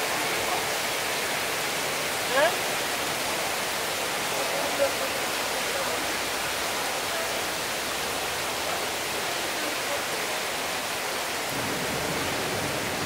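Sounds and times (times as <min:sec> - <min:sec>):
heavy rain on rooftops: 0:00.0 - 0:13.0.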